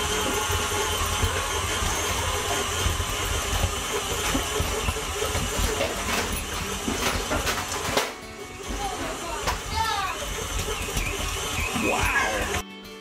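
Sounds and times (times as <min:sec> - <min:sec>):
stand mixer motor running: 0:00.0 - 0:12.6.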